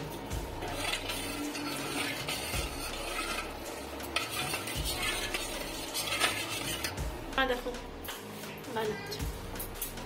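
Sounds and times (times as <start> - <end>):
ladle scraping steel pot: 0.0 - 7.0.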